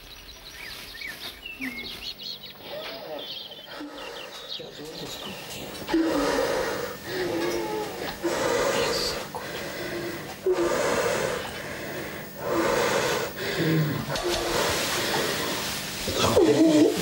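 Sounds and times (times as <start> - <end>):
woman breathing heavily: 3.7 - 4.6, 5.2 - 15.8.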